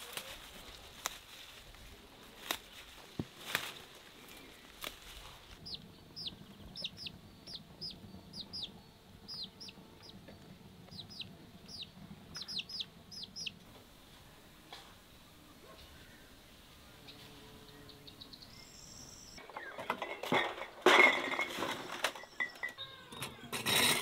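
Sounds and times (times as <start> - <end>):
chick peeping: 5.6 - 13.7.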